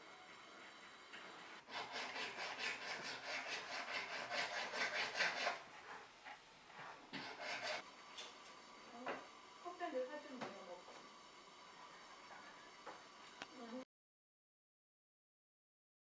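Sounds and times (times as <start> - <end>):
rasping hand tool on metal: 1.7 - 5.7, 7.1 - 7.8.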